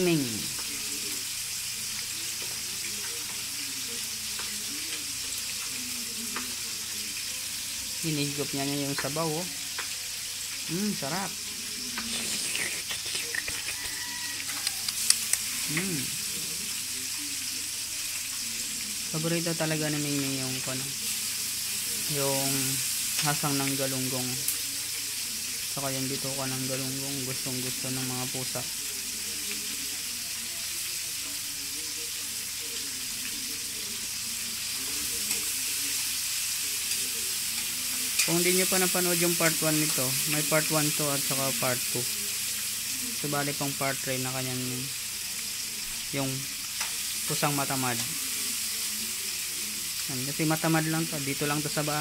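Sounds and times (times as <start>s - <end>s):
faint voices murmuring: 0.0s - 43.8s, 44.6s - 50.3s
steady hiss: 0.0s - 52.0s
cat chewing and slurping: 11.9s - 15.9s.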